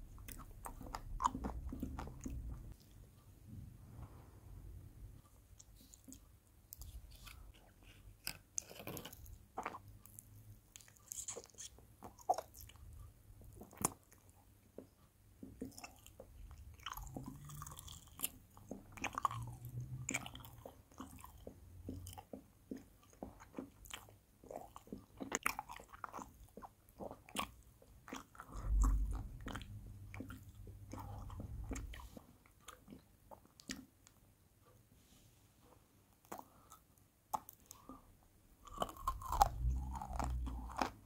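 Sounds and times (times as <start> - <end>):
chewing candy: 0.0 - 3.0, 5.6 - 34.2, 36.2 - 41.0
muffled low rumble: 0.0 - 5.3, 28.5 - 32.0.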